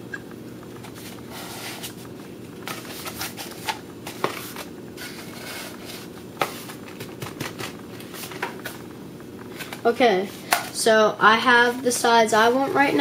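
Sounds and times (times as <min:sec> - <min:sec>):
low room hum: 0:00.0 - 0:13.0
paper rustling and crinkling: 0:00.8 - 0:08.8.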